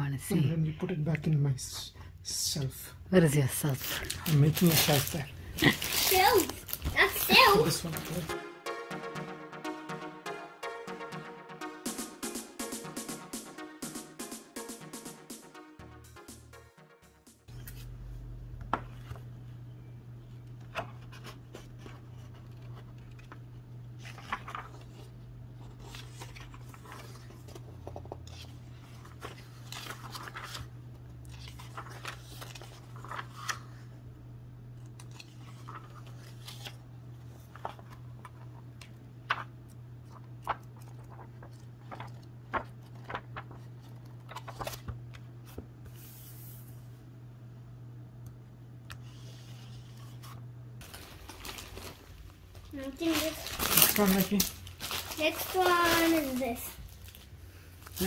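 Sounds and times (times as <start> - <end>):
comic book pages turning: 3.8 - 8.3, 17.5 - 19.3, 20.3 - 33.9, 34.8 - 46.7, 48.9 - 58.0
steady low hum: 17.5 - 53.6.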